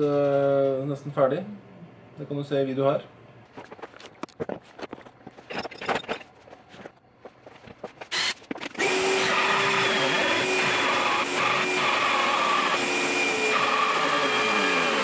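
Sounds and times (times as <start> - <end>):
jigsaw cutting wood: 8.1 - 15.0.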